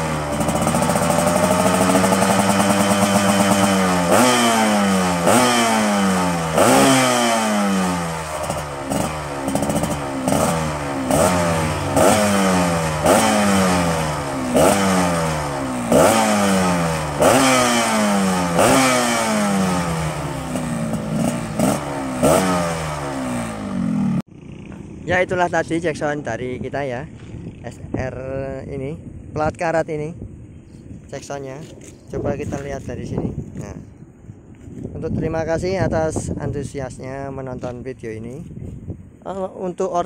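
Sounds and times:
two-stroke motorcycle engine revving: 0.0s - 25.7s.

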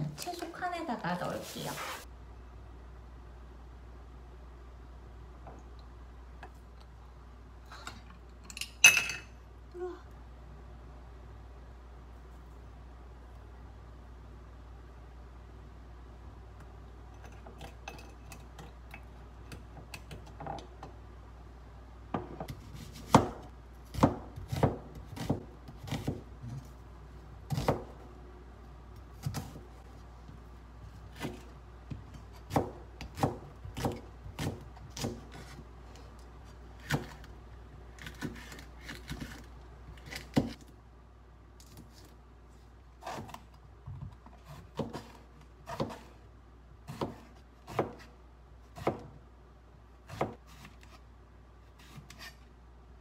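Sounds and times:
knife chopping on cutting board: 22.2s - 26.2s, 27.5s - 28.0s, 31.1s - 31.5s, 32.4s - 35.6s, 44.4s - 46.1s, 46.9s - 48.1s, 48.8s - 49.1s, 50.1s - 50.9s.

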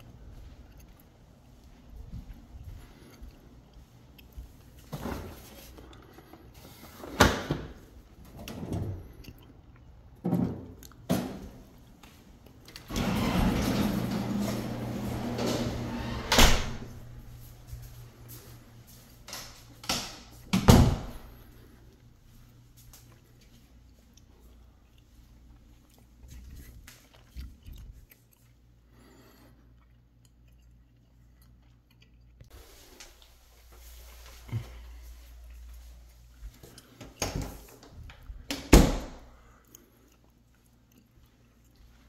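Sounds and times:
door scraping: 12.8s - 17.4s.

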